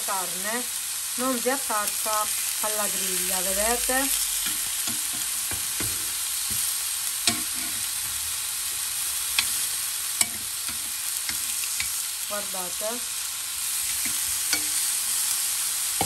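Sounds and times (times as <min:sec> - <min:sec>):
meat sizzling in a grill pan: 0:00.0 - 0:16.0
metal tongs clicking on pan: 0:07.2 - 0:07.8, 0:09.4 - 0:09.6, 0:10.2 - 0:12.0, 0:13.9 - 0:14.9.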